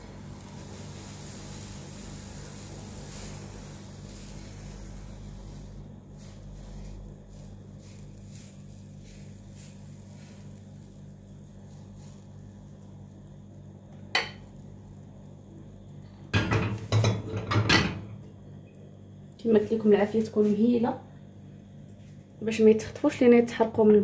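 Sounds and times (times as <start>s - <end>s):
pancake batter sizzling: 0.0s - 17.6s
steady low hum: 0.0s - 24.0s.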